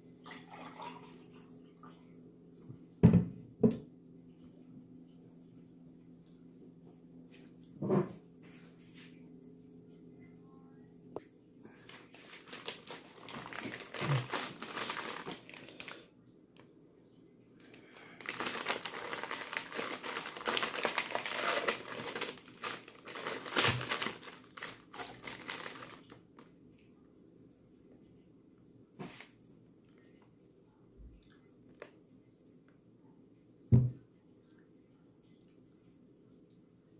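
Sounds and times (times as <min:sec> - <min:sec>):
plastic wrapper crinkling: 0:11.8 - 0:16.0, 0:17.6 - 0:26.4.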